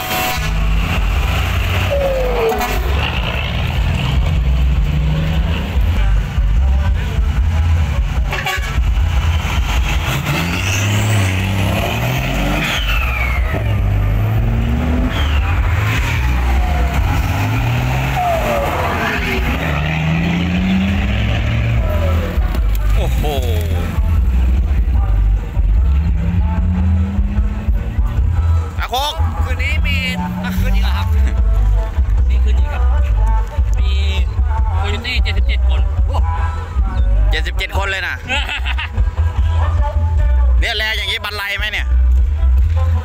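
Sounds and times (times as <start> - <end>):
diesel trucks revving: 0.0 - 43.0
falling whistling tones: 12.6 - 13.7, 14.9 - 15.9.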